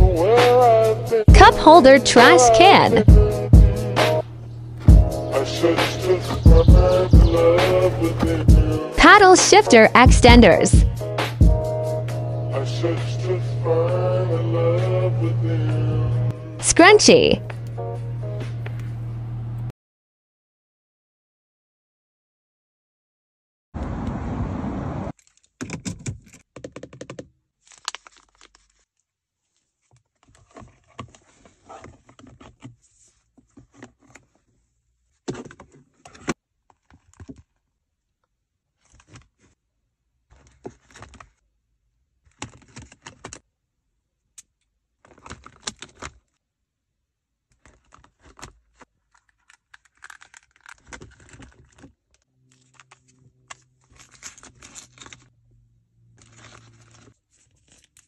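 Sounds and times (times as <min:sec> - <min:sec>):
plastic pouch rustling: 0:27.5 - 0:34.5, 0:47.5 - 0:55.4, 0:56.0 - 0:58.0.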